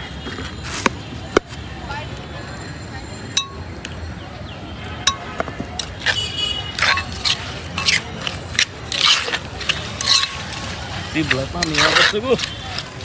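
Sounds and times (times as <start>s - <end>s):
metal spoon tapping stone mortar: 3.4s - 3.6s, 5.1s - 6.0s, 9.7s - 10.6s
scraping and rustling strokes: 5.8s - 13.0s.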